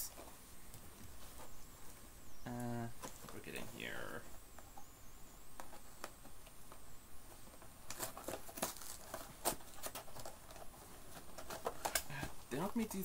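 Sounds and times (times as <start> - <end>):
plastic wrapper crinkling: 7.8 - 13.0.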